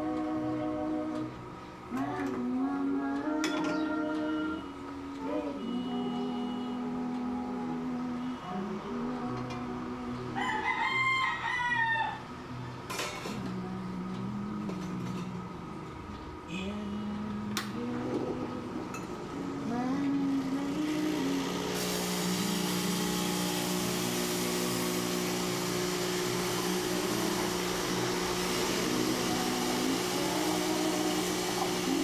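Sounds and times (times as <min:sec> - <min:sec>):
espresso machine pump humming: 0:19.6 - 0:32.0
steam wand hissing: 0:20.4 - 0:32.0.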